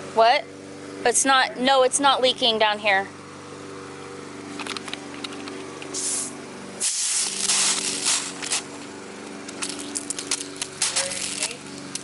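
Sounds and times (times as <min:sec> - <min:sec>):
hose nozzle spraying water: 0:05.8 - 0:08.8, 0:09.5 - 0:12.0.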